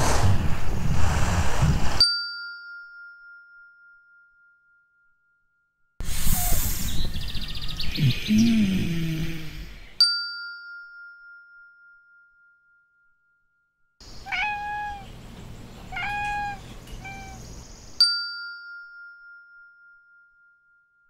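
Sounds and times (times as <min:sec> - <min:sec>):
low swooping tones: 0:00.0 - 0:02.0
kitten meowing: 0:14.2 - 0:15.1, 0:15.9 - 0:17.4.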